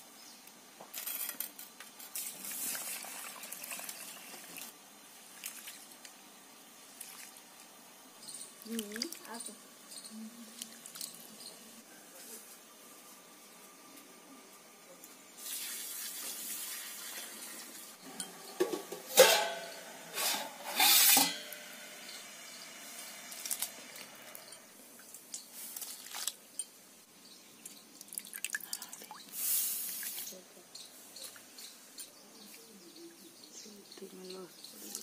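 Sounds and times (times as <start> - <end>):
steel pots clanking: 16.9 - 22.5.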